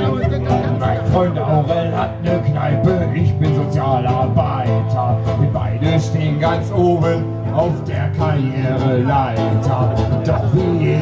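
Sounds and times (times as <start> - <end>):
man singing: 0.0 - 11.0
strummed acoustic guitar: 0.0 - 11.0.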